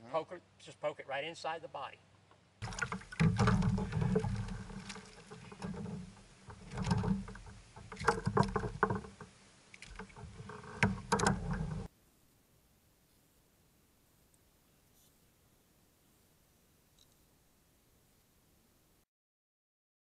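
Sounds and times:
sharp knocks on hull: 2.6s - 9.3s
water splashing on kayak: 2.6s - 11.9s.

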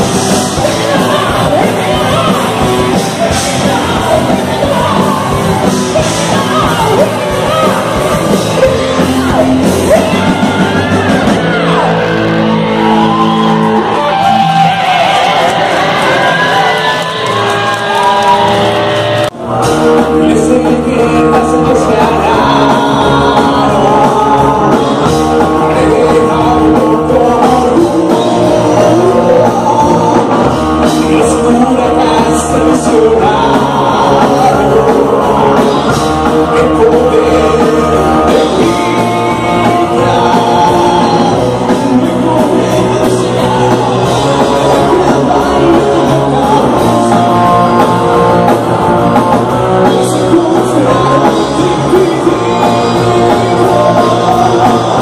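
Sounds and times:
rock band playing live: 0.0s - 55.0s.

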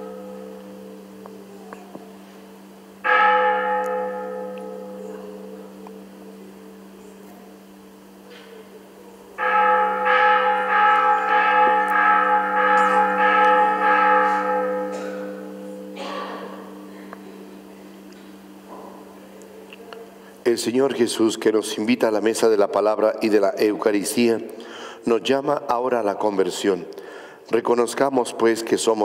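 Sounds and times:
bell ringing: 9.4s - 15.4s.

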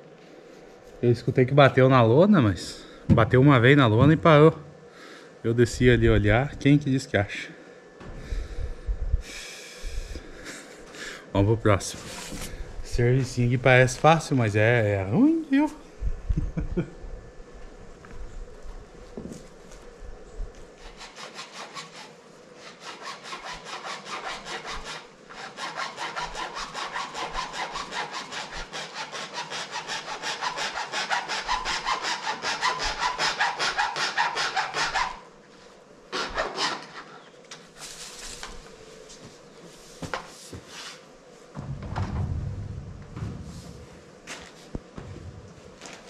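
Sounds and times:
hand saw cutting plastic pipe: 20.8s - 35.2s, 36.1s - 37.1s.

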